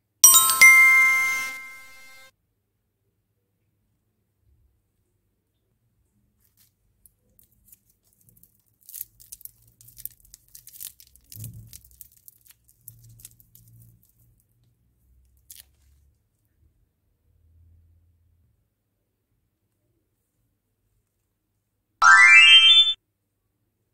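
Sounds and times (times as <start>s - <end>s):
foil wrapper crinkling: 7.4s - 13.8s.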